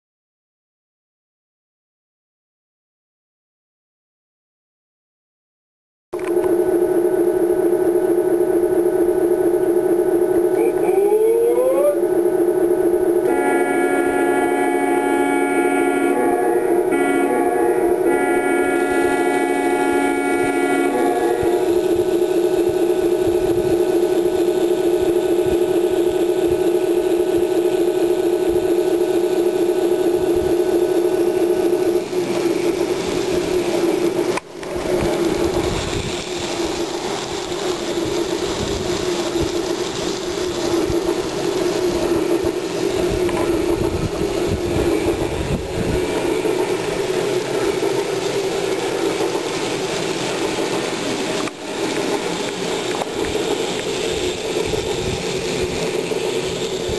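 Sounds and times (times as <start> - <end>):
model trains humming: 6.2 - 56.9
model train rattling: 17.3 - 56.9.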